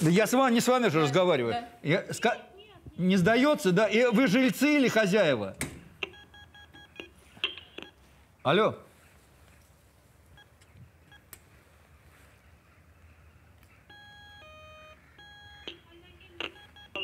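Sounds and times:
faint keypad beeps: 0:06.0 - 0:08.0, 0:13.8 - 0:17.0
intercom call signal ringing: 0:13.9 - 0:17.0.

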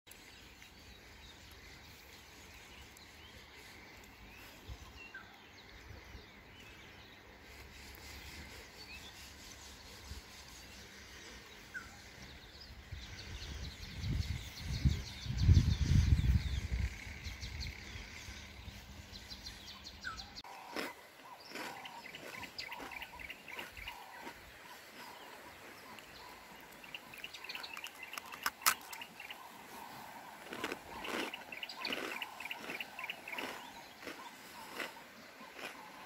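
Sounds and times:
bird chirps: 0:07.5 - 0:36.0.

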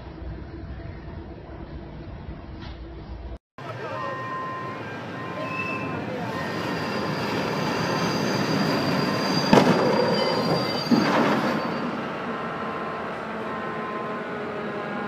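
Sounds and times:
locomotive wheels squealing: 0:03.7 - 0:14.5
bang: 0:09.4 - 0:12.0
loud crash: 0:09.4 - 0:12.0.

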